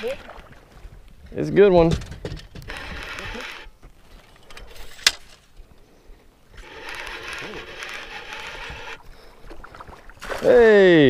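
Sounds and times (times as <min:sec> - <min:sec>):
fishing reel winding: 0:06.6 - 0:09.0.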